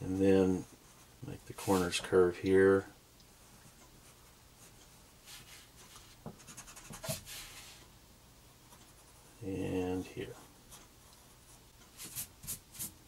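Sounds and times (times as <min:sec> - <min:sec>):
pencil scratching on paper: 0:04.0 - 0:07.8.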